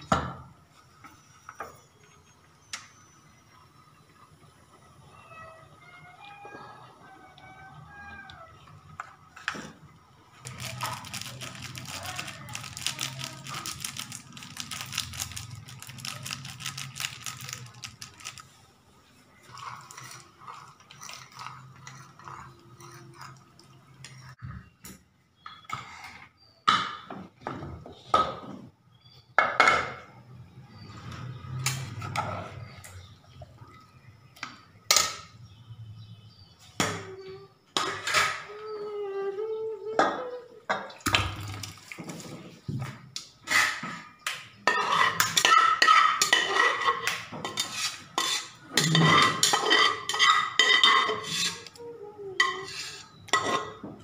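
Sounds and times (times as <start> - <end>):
metal spoon clinking against bowl: 44.7 - 51.7.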